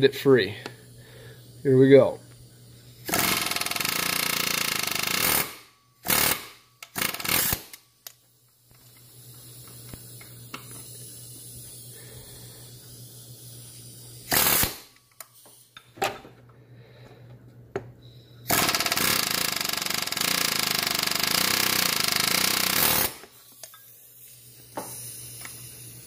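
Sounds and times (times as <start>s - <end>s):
pneumatic air hammer hammering: 3.0s - 7.8s, 14.2s - 16.2s, 18.5s - 23.8s, 24.7s - 26.0s.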